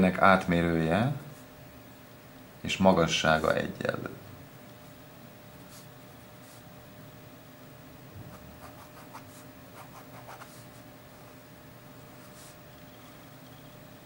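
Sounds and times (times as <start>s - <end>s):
pen scratching on paper: 8.3s - 10.7s.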